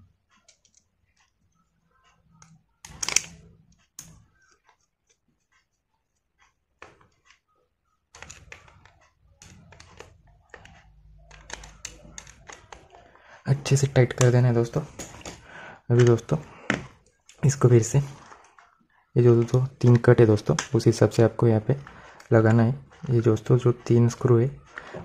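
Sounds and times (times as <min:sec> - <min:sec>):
screwdriver clicks: 0:02.4 - 0:03.4.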